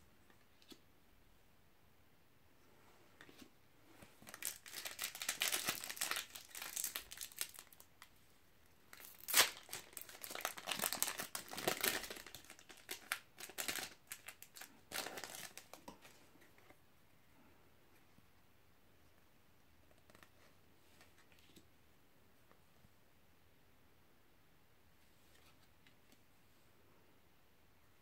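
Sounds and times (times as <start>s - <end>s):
plastic wrapper crinkling: 4.2s - 8.0s, 8.9s - 16.2s
wrapper tearing: 4.3s - 7.9s, 8.9s - 15.8s.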